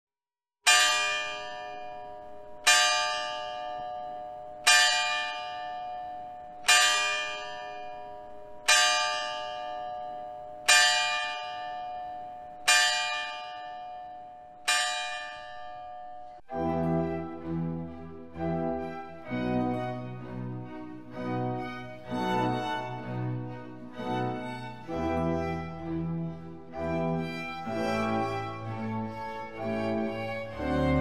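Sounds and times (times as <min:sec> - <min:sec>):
clock bell striking: 0:00.7 - 0:16.5.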